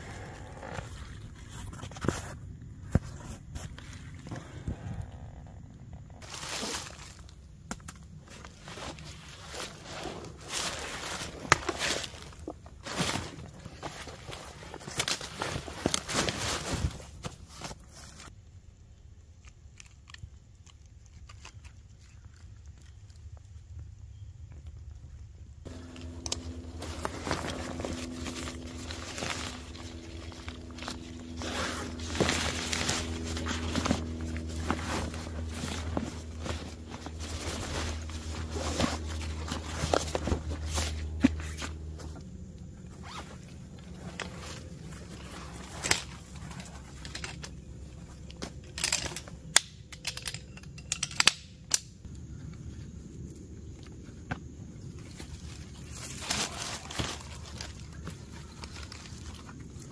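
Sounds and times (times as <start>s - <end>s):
fabric rustling and crinkling: 8.1s - 18.3s, 25.6s - 48.4s, 55.0s - 59.9s
low steady hum: 21.8s - 59.9s.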